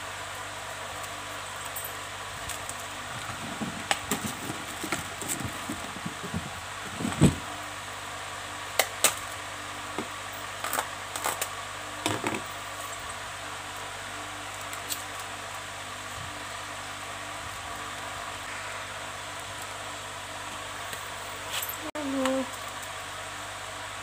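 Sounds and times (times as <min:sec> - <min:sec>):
background hum: 0:00.0 - 0:24.0.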